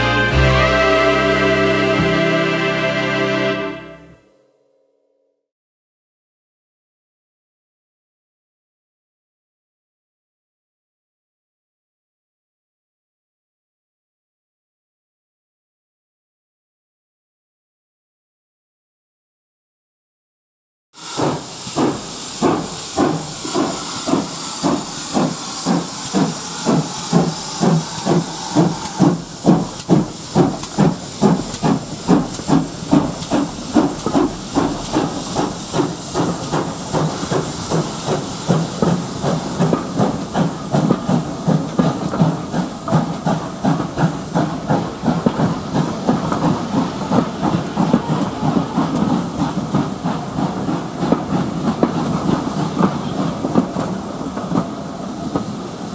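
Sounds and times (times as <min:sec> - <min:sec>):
steam locomotive chuffing: 0:00.0 - 0:04.0, 0:21.0 - 0:55.9
steam hiss: 0:21.0 - 0:55.9.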